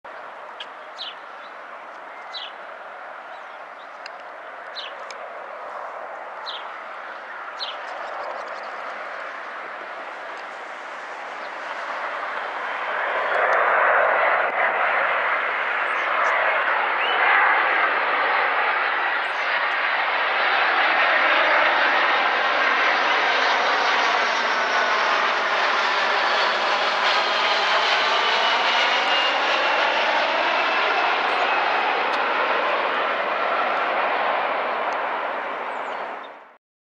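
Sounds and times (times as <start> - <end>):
bird chirping: 0.1 - 2.6, 3.2 - 5.1, 6.4 - 9.2
distant jet airliner rush: 0.1 - 36.6.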